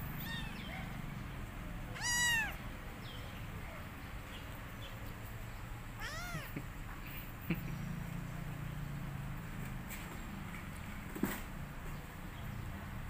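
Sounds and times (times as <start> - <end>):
cat meowing: 0.2 - 0.8, 1.9 - 2.6, 6.0 - 6.6
cat chirps: 1.9 - 2.6, 6.0 - 6.6.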